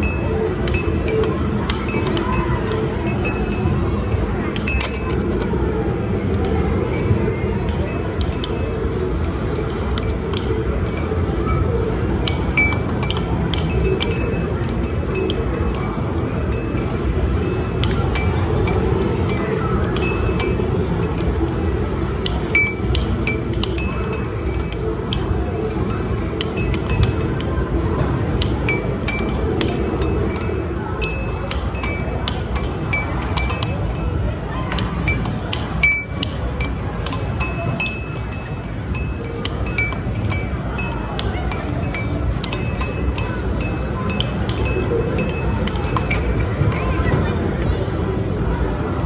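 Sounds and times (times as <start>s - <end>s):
low hum of machines: 0.0s - 49.0s
air hockey puck clacking: 6.2s - 47.5s
sharp clinks with ringing dings: 28.4s - 34.2s, 35.0s - 47.0s.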